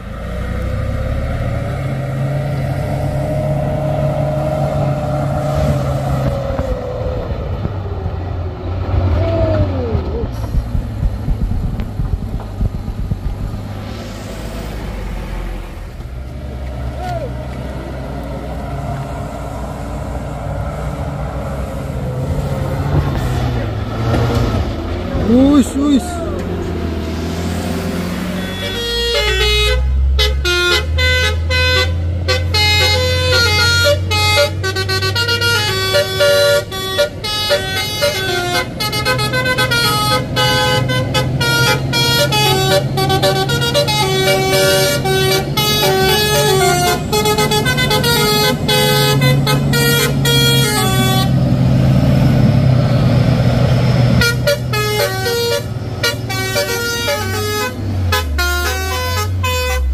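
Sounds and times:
diesel engine drone: 0.0s - 59.9s
truck musical horn: 28.2s - 51.7s, 54.1s - 59.9s.

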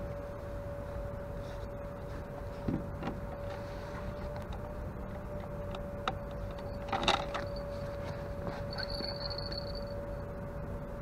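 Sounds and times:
steady hum: 0.0s - 11.0s
clatter of handled gear: 6.5s - 9.9s.

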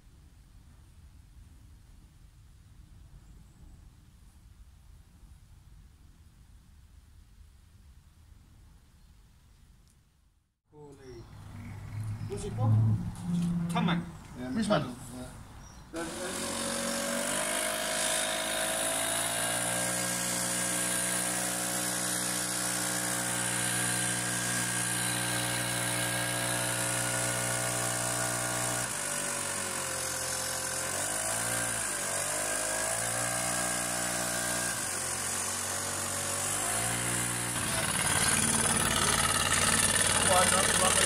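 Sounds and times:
engine running: 16.0s - 41.0s.

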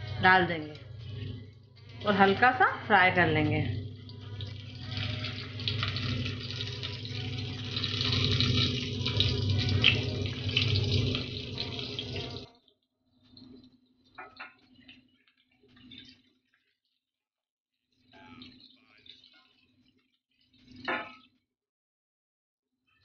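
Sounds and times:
potatoes sizzling in hot oil: 0.0s - 12.5s.

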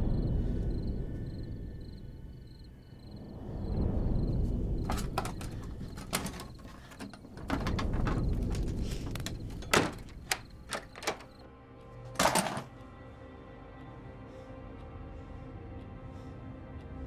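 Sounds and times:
low rumbling drone: 0.0s - 6.2s
wooden door knocks and creaks: 4.9s - 11.4s.

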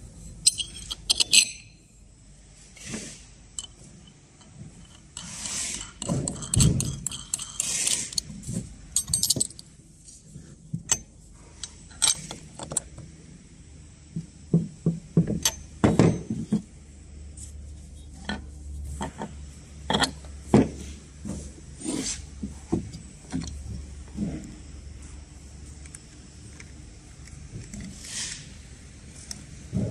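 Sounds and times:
metal hardware clinking: 0.4s - 1.8s, 3.6s - 8.3s, 9.0s - 9.7s, 15.4s - 16.4s.

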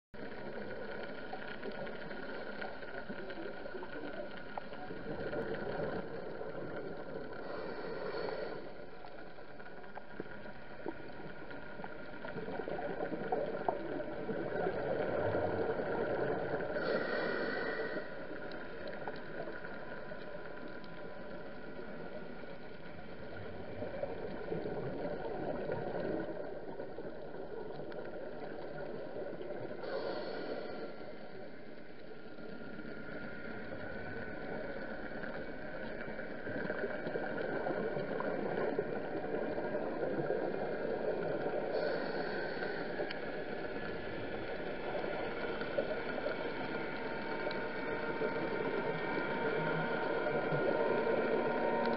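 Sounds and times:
underwater hum and rushing: 0.2s - 51.9s.

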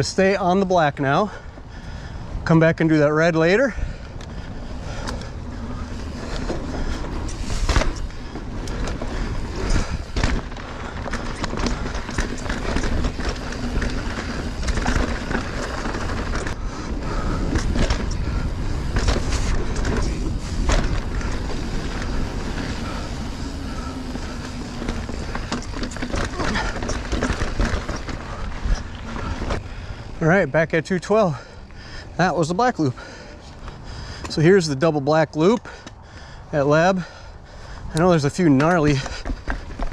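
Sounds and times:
bike knocking and rattling: 0.0s - 39.9s
bike tyres on dirt trail: 0.0s - 39.9s
wind on microphone: 3.8s - 30.2s.

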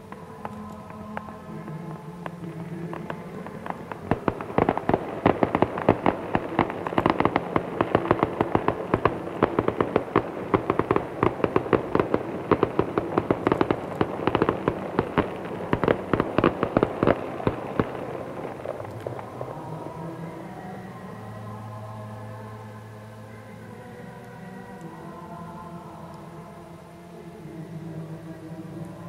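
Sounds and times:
fireworks bangs and crackles: 0.0s - 20.9s.

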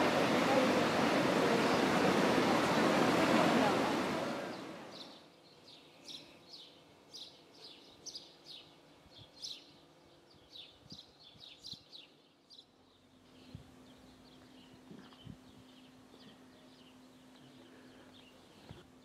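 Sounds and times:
faint steady hum: 0.0s - 19.0s
small bird chirping: 4.9s - 18.8s.

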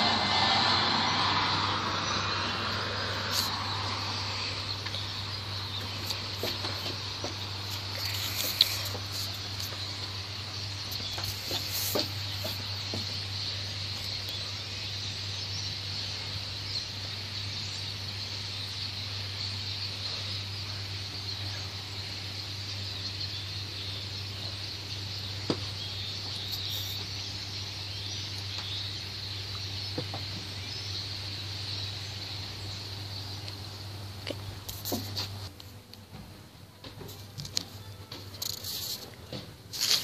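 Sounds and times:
low hum: 0.0s - 11.5s
high hissing noise: 0.0s - 35.6s, 37.8s - 40.0s.

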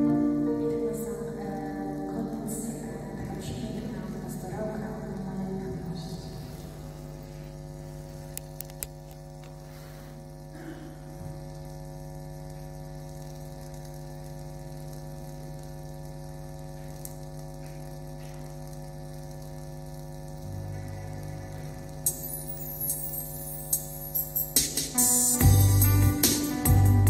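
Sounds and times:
electronic drone: 20.2s - 27.0s.

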